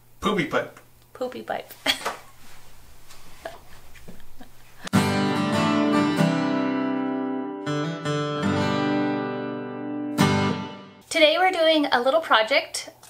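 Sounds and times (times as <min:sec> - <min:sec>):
strummed guitar chords: 0:04.9 - 0:11.0.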